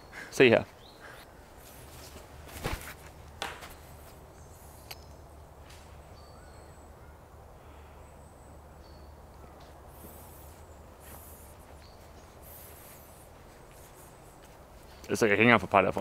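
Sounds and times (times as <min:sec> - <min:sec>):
faint bird calls: 0:00.0 - 0:02.2, 0:03.7 - 0:15.2
sharp thump or scuff: 0:02.5 - 0:03.7.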